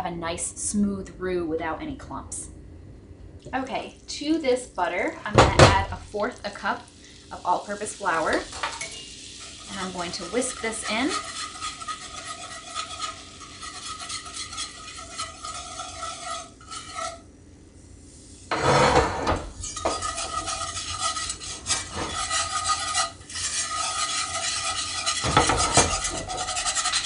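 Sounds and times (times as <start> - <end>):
butter sizzling: 3.4 - 27.0
whisk scraping a skillet: 7.1 - 17.3, 18.1 - 27.0
pan clatter: 8.3 - 17.2, 18.5 - 27.0.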